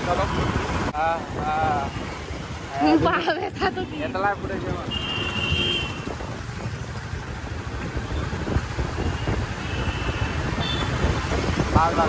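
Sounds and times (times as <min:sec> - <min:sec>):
traffic noise: 0:00.0 - 0:12.0
wind rumbling on microphone: 0:00.0 - 0:12.0
vehicle horn beeps: 0:04.8 - 0:06.1.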